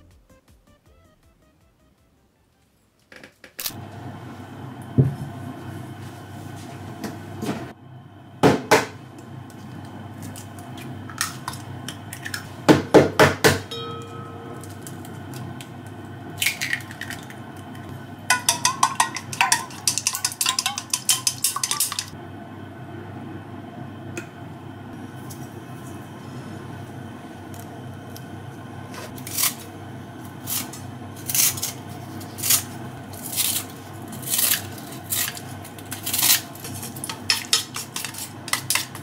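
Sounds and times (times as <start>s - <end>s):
chopsticks beating eggs in bowl: 14.6s - 22.2s, 30.4s - 39.0s
eggs knocked on steel bowl: 18.3s - 22.1s.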